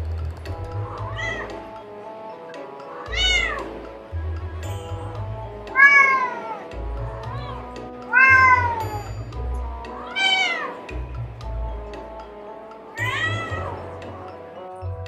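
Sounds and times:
background music with pulsing bass: 0:00.0 - 0:15.0
cat meowing: 0:01.0 - 0:01.6, 0:03.0 - 0:03.7, 0:05.7 - 0:06.7, 0:07.3 - 0:08.9, 0:10.0 - 0:10.8, 0:12.9 - 0:13.8.

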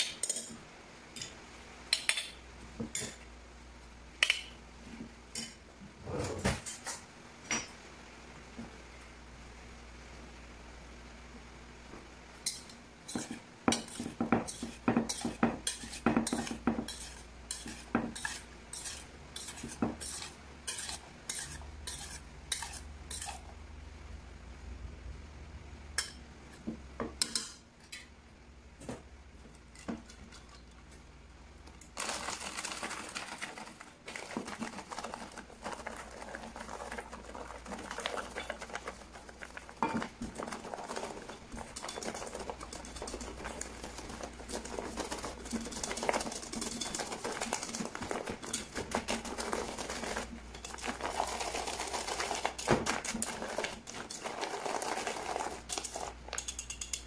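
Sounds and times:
metal utensils clinking on dishes: 0:53.0 - 0:57.0.

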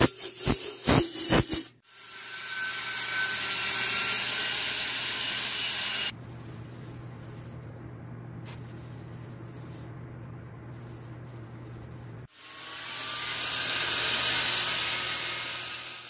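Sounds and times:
wood lathe humming: 0:12.4 - 0:16.0.

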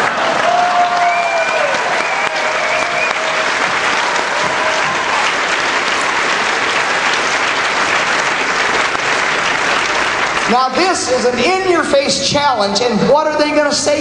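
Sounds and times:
audience cheering: 0:00.0 - 0:12.0
audience applauding: 0:00.0 - 0:12.1.

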